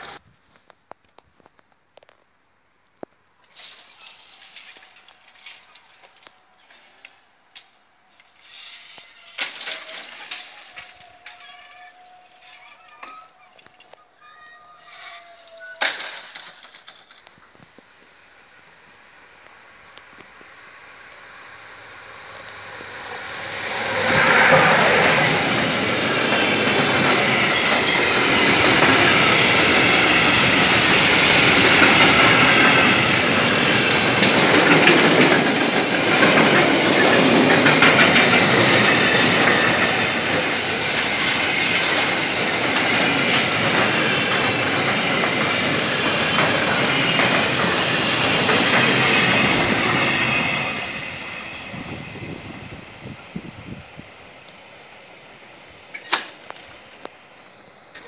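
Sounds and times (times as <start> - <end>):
freight train wheels clacking on rails: 22.0 - 53.1.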